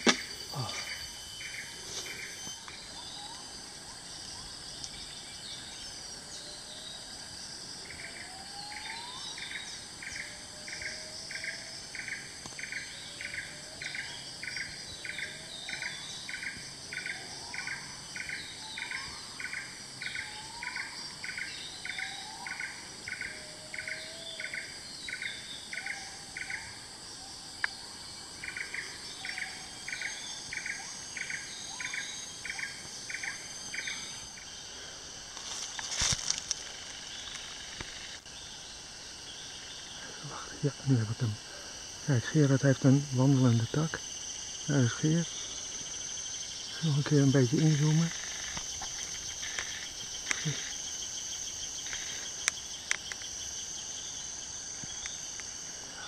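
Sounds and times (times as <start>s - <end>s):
high insect hum: 0.0s - 56.0s
insect call pulsing: 0.0s - 56.0s
birds whistling and chirping: 0.5s - 3.7s.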